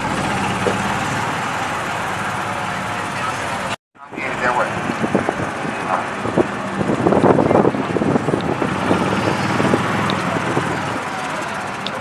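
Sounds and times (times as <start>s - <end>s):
car engine running: 0.0s - 12.0s
wind on microphone: 4.1s - 11.0s.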